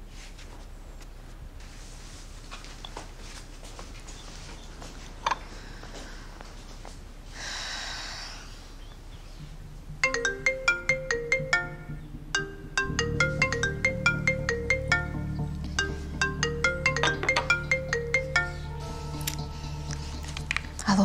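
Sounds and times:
low bass: 9.0s - 21.0s
marimba-like phone ringtone: 10.0s - 19.7s.

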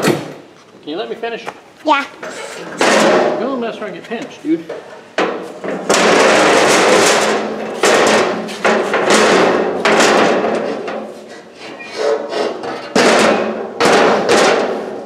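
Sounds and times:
metal ramp panels clanking: 2.2s - 3.8s, 4.7s - 15.0s.

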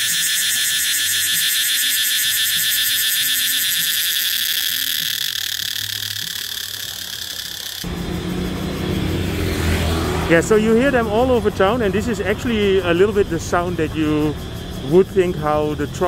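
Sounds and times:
cicada buzzing: 0.0s - 16.0s
road traffic rumble: 4.7s - 16.0s.

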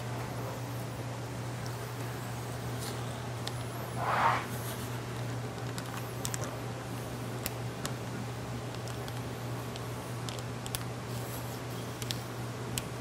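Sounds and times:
steady low hum: 0.0s - 13.0s
rustling swish of film: 4.0s - 4.7s.

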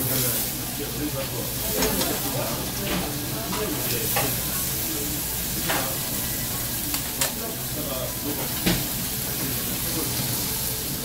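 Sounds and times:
meat sizzling on grill: 0.0s - 11.0s
metal tongs clicking on grill: 6.9s - 7.4s.

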